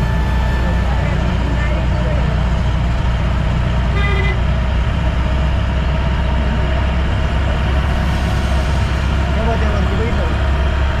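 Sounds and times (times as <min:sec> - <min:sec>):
vehicle engine and road rumble: 0:00.0 - 0:11.0.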